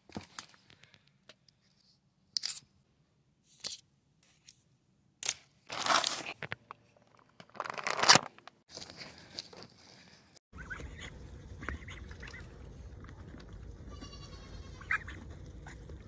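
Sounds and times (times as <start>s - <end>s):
plastic bag crinkling: 7.2s - 8.5s.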